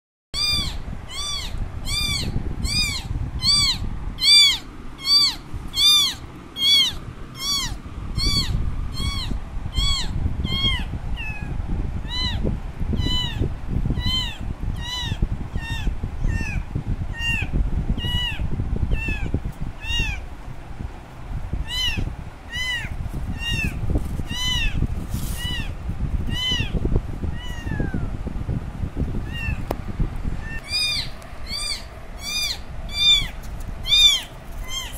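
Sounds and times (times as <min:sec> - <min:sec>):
kitten meowing: 0:00.4 - 0:12.4, 0:13.0 - 0:20.2, 0:21.6 - 0:28.1, 0:29.2 - 0:29.7, 0:30.4 - 0:34.9
steady low rumble: 0:00.4 - 0:34.9.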